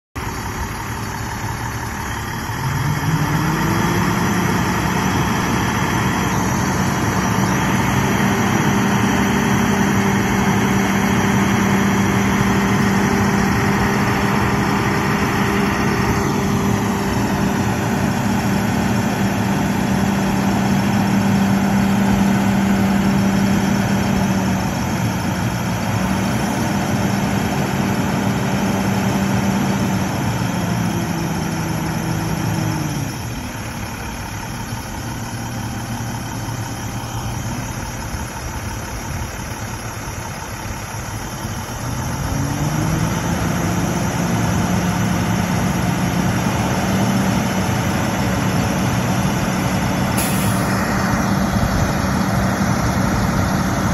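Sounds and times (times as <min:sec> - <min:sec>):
diesel truck engine running: 0:00.2 - 0:53.9.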